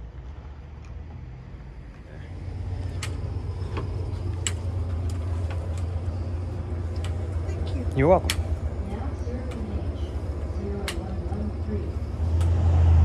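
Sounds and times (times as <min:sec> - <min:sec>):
low machine hum: 0:00.0 - 0:13.0
sharp clicks: 0:10.8 - 0:11.4, 0:12.3 - 0:12.6.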